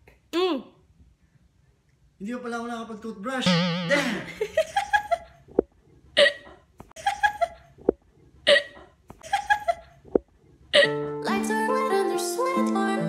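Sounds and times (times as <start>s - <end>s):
background music: 10.9s - 13.0s.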